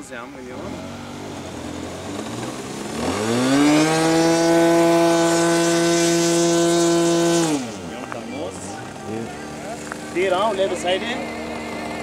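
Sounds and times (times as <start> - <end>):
model airplane engine buzzing: 0.0 - 12.0.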